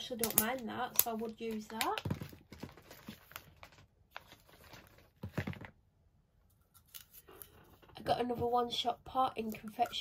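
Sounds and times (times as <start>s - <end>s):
plastic packaging rustling: 0.0s - 5.8s.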